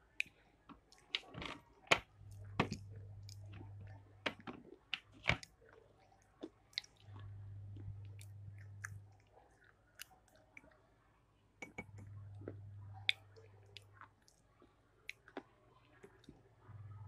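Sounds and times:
chewing with wet mouth smacks: 5.4s - 10.8s.

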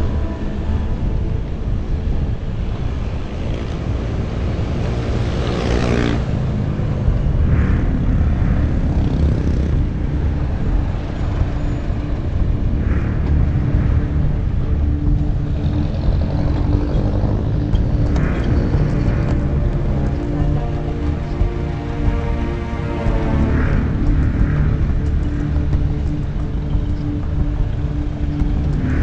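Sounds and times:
passing engine: 0.0s - 29.0s
traffic engine hum: 0.0s - 29.0s
wind and road rumble: 0.0s - 29.0s.

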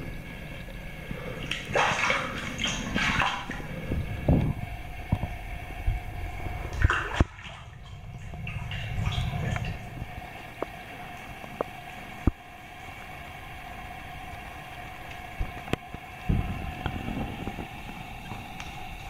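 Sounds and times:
bath pump humming: 0.0s - 19.0s
soft low thumps: 15.4s - 18.6s.

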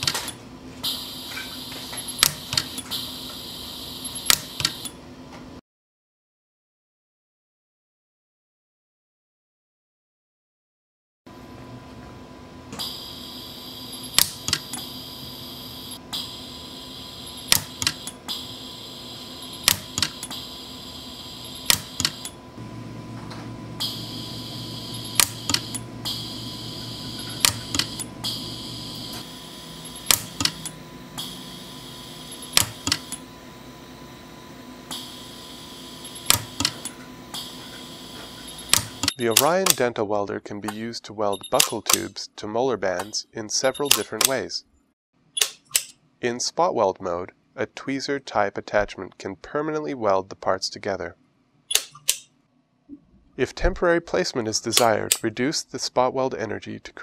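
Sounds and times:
steady hum: 11.3s - 39.6s
high whine: 12.7s - 39.4s.

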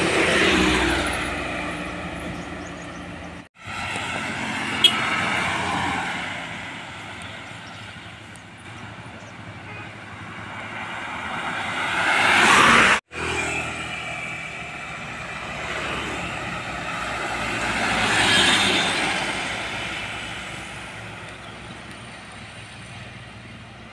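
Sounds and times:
car rushing past: 10.4s - 14.5s.

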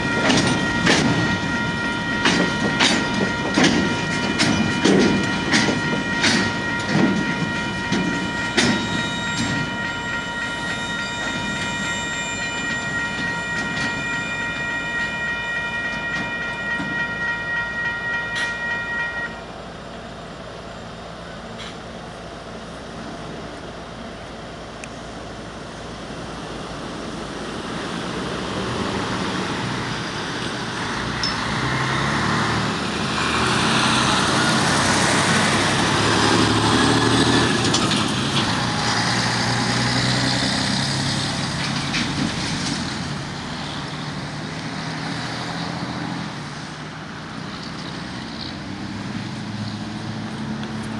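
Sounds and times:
cars passing: 26.4s - 50.9s
vehicle towing trailer passing: 26.5s - 50.9s.

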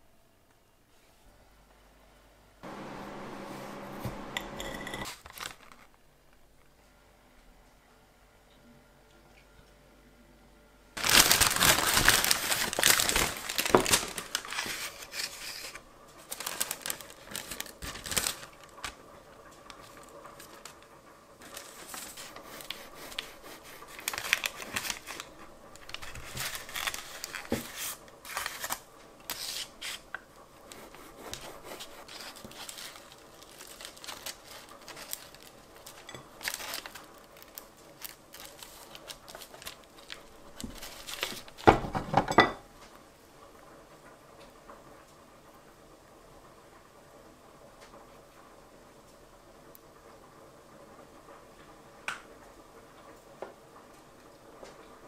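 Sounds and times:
paper bag crinkling: 4.6s - 6.1s, 11.0s - 42.1s.

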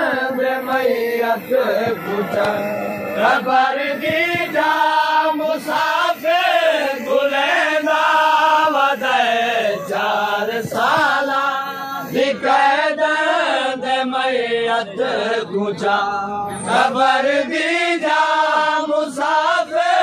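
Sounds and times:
lead reciter: 0.0s - 20.0s
men chanting lament in unison: 0.0s - 20.0s.

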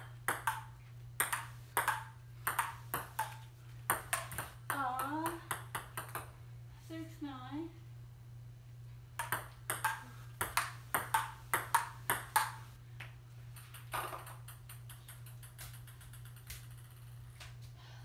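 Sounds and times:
ping pong ball bouncing: 0.0s - 6.3s, 9.2s - 12.7s, 13.6s - 17.1s
ping pong ball clicks off paddles: 0.3s - 6.3s, 9.2s - 12.6s, 13.6s - 17.1s.

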